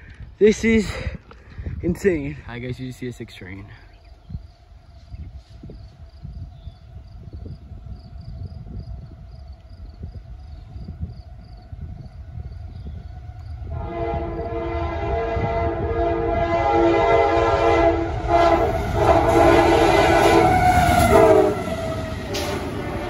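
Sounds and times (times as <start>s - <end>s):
train rumbling and clattering: 1.2s - 23.0s
locomotive air horn blasts: 13.6s - 23.0s.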